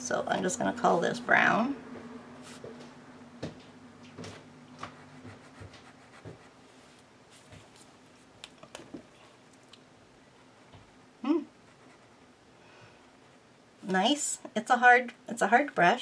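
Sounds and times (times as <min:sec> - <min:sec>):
brush pen strokes on paper: 0:02.4 - 0:02.8, 0:04.8 - 0:07.9.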